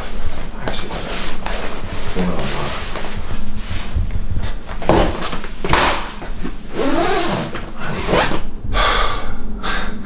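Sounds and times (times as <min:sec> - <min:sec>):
suitcase and clothes rustling: 0:00.0 - 0:08.5.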